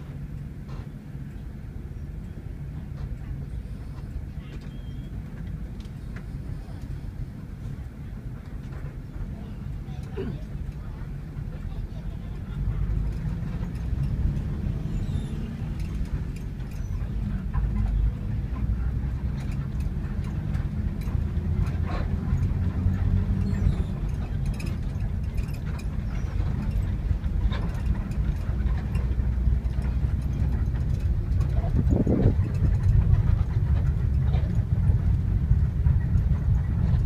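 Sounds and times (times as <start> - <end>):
bus diesel engine rumble: 0.0 - 37.0
road noise: 0.0 - 37.0
light clicks in cabin: 0.2 - 21.9.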